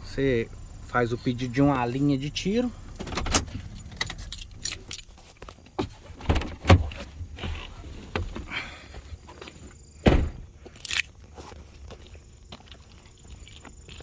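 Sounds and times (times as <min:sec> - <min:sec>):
car door opening and shutting: 0:02.9 - 0:05.1, 0:05.8 - 0:08.5, 0:10.0 - 0:10.5
clunks and knocks: 0:03.0 - 0:05.1, 0:05.7 - 0:08.6
heavy thump: 0:10.0 - 0:10.5.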